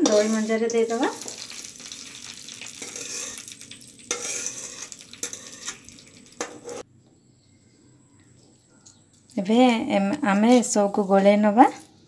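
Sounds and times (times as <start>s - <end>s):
seeds sizzling in hot oil: 0.0s - 6.8s.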